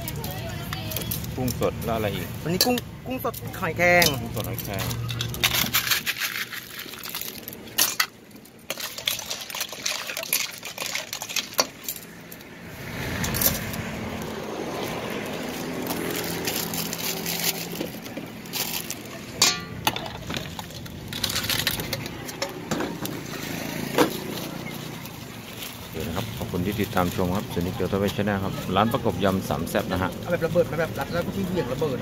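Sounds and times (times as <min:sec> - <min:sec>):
dressing being poured: 0:08.7 - 0:11.7.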